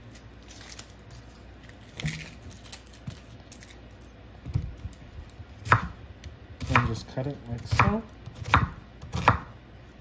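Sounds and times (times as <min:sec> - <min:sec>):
onion skin crackling: 0:00.0 - 0:05.8.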